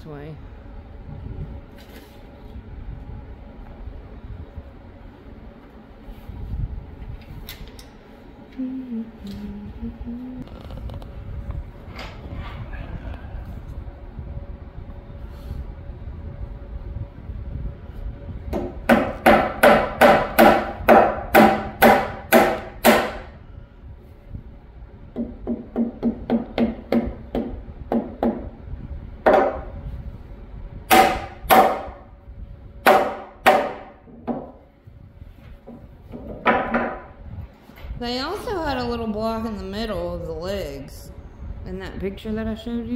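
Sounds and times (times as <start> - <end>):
hammer striking wood: 18.5 - 23.3, 25.2 - 28.5, 29.2 - 29.7, 30.9 - 32.0, 32.8 - 34.6, 36.1 - 37.1.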